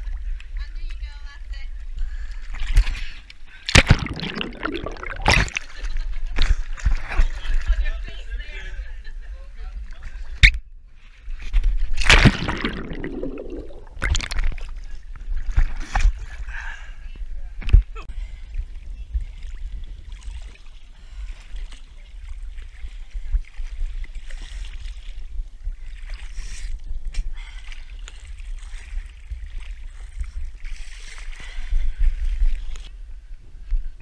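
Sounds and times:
water splashing from wading: 3.6s - 7.2s, 11.9s - 16.4s.

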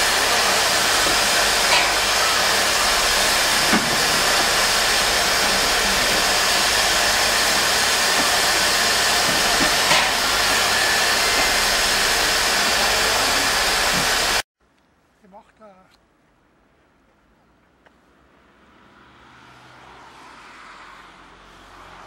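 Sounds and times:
steam locomotive hissing: 0.0s - 14.4s.

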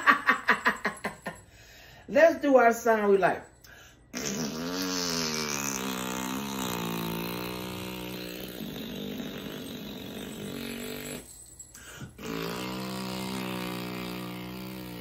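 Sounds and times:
man blowing lip trill: 4.1s - 15.0s.

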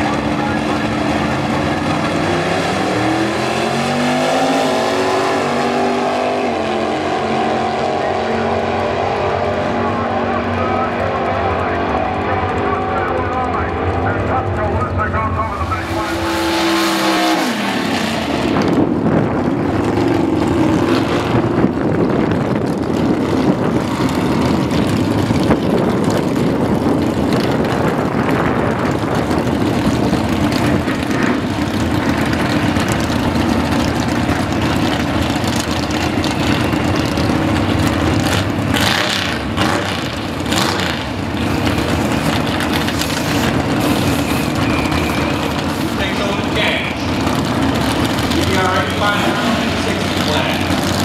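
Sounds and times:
drag racing engines idling: 0.0s - 51.0s.

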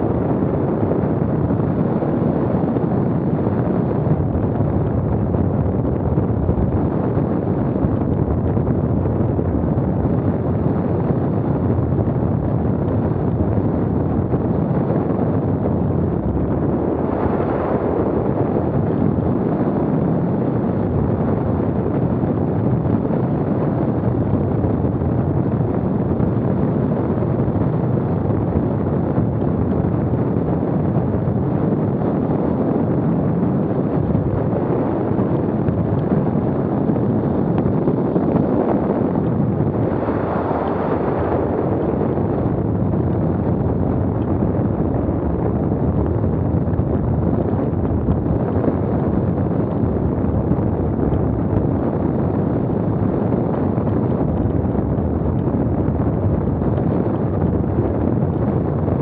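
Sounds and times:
wind buffeting microphone: 0.0s - 59.0s.

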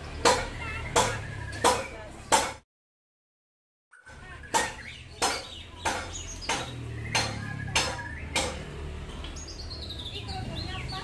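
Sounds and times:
sharp rhythmic knocks: 0.1s - 2.6s, 4.1s - 8.8s.

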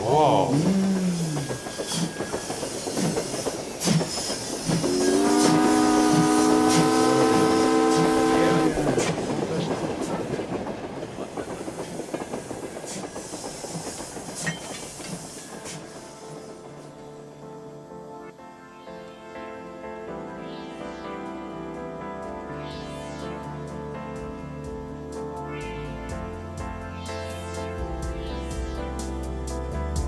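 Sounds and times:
train wheels clicking over rail joints: 0.0s - 17.0s
train horn: 4.8s - 9.4s.

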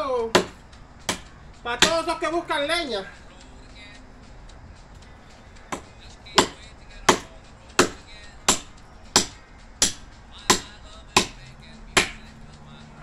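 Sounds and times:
machete chopping wood: 0.2s - 2.2s, 5.7s - 12.4s.

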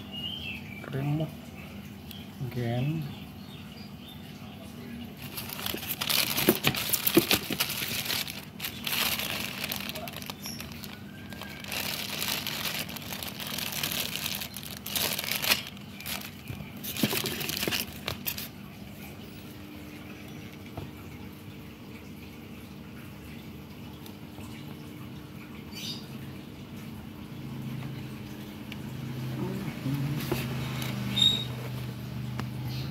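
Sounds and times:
plastic bags crinkling: 5.2s - 18.5s.

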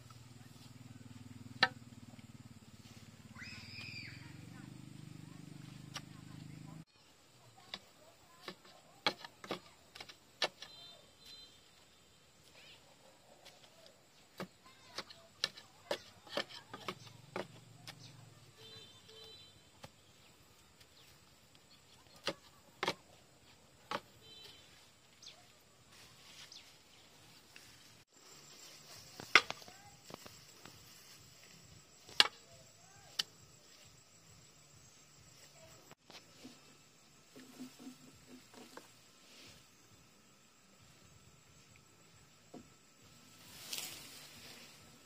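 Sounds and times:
stick knocking into soil: 13.4s - 18.1s, 22.0s - 23.1s, 29.2s - 30.3s.

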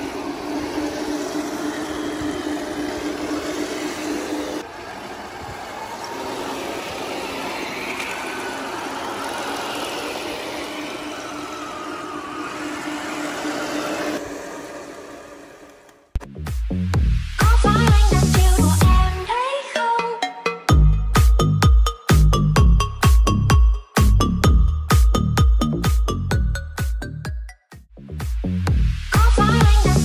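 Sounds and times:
model tank motor whine: 0.0s - 4.6s, 6.4s - 16.1s.

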